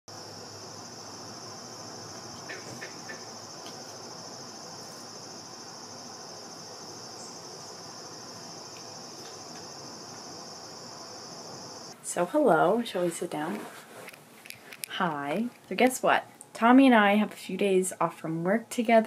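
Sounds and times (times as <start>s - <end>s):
crickets chirping: 0.1s - 12.0s.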